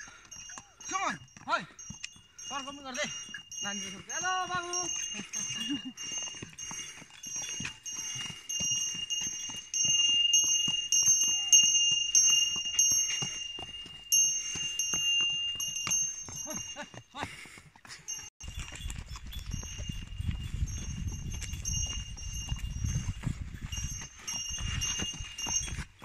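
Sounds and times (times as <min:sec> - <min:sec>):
horse hooves clopping on dirt: 0:00.0 - 0:26.0
steady high ringing: 0:00.1 - 0:17.0.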